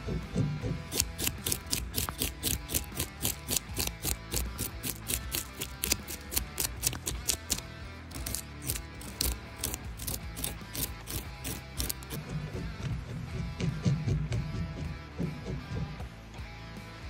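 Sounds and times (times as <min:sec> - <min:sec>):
background music: 0:00.0 - 0:17.0
spoon scraping fish scales: 0:00.9 - 0:12.2.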